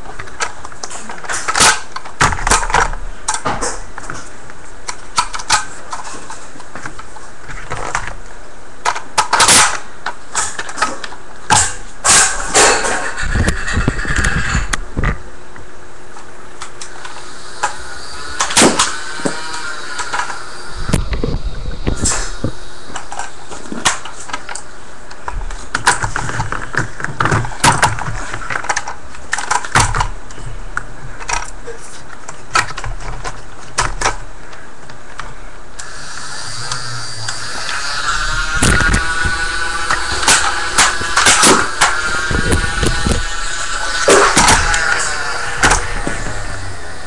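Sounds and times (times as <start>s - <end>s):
toy blaster motors running: 16.9s - 24.6s, 35.8s - 47.0s.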